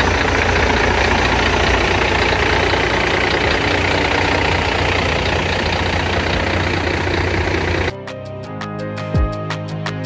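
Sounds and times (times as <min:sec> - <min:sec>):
truck engine idling: 0:00.0 - 0:07.9.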